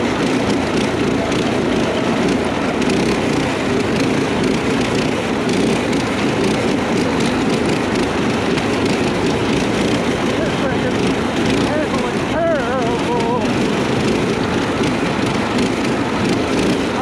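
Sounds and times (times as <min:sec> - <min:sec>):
go-kart engines running: 0:00.0 - 0:17.0.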